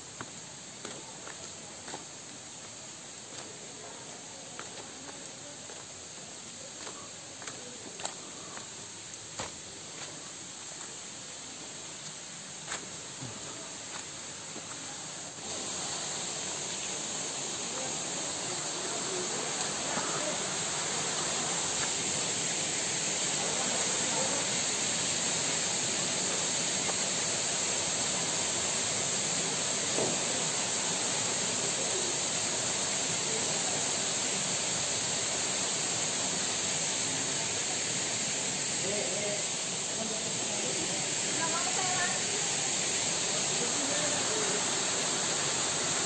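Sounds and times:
stream water rushing: 11.1 - 46.0.

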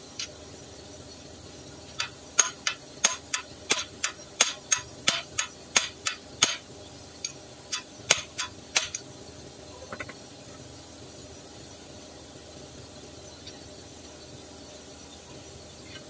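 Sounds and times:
hand tool tapping on metal: 2.0 - 6.6.

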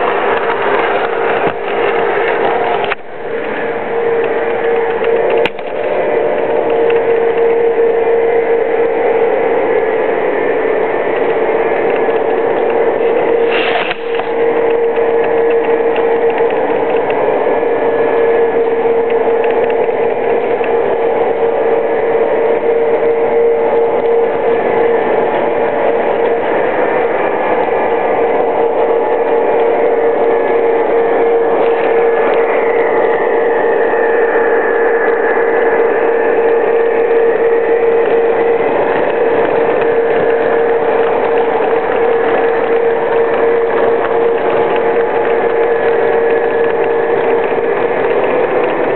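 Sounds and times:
high motor whine: 0.0 - 48.9
model train wheels rolling: 0.0 - 48.9
steady hum: 0.0 - 48.9.

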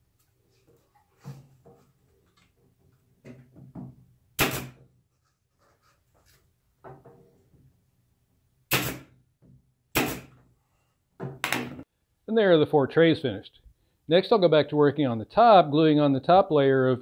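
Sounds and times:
pin nailer firing: 4.4 - 4.8, 8.7 - 9.2, 9.9 - 10.4.

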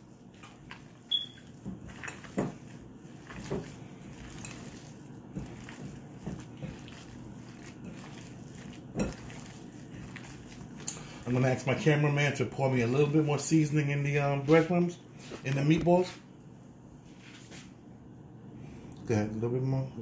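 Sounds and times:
hands squelching ground meat: 0.0 - 12.2.

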